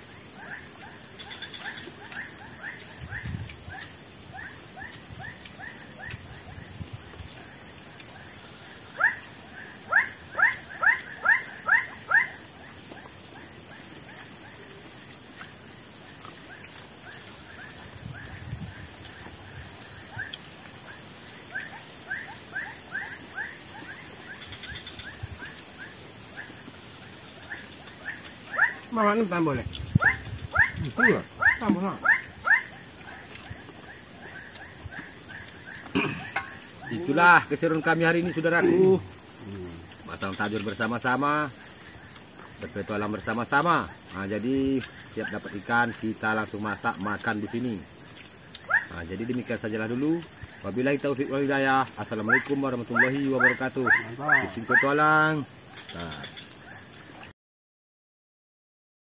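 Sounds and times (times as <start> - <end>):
animal chirping: 0.1 - 6.7, 8.0 - 14.8, 19.1 - 40.6, 52.2 - 55.0.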